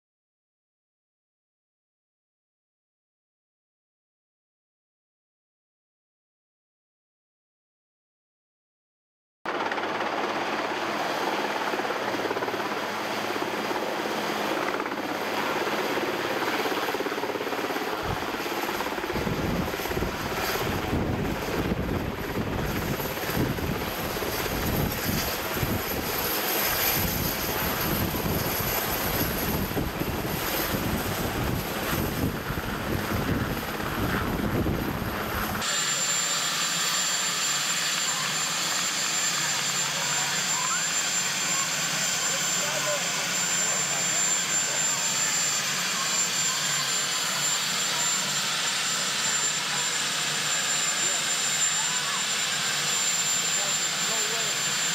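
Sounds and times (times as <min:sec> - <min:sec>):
helicopter engine and rotor roar: 0:09.5 - 0:54.9
high steady whine: 0:11.5 - 0:54.9.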